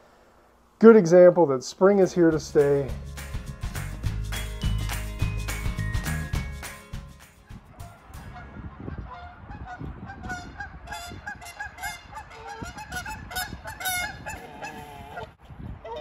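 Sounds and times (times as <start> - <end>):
geese honking: 7.8 - 16.0.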